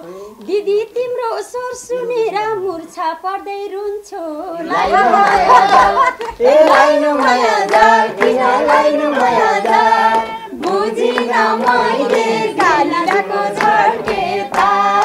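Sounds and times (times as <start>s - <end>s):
person singing folk song: 0.0s - 15.0s
hand clapping: 4.8s - 15.0s.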